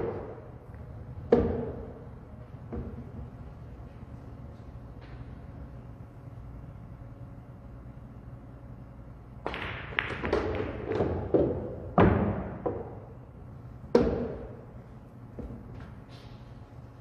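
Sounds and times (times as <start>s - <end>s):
pool balls clicking: 9.4s - 13.2s.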